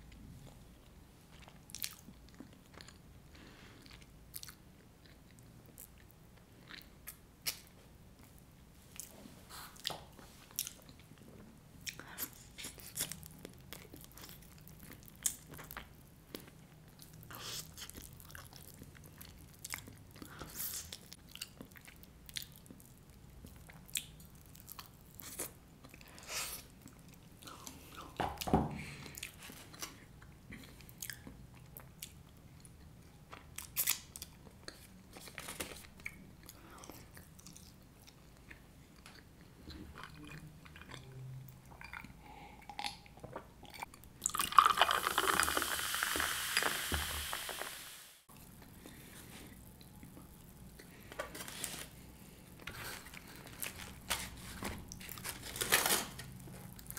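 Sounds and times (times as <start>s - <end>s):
person chewing food crunchily: 1.3s - 28.2s, 28.9s - 46.0s.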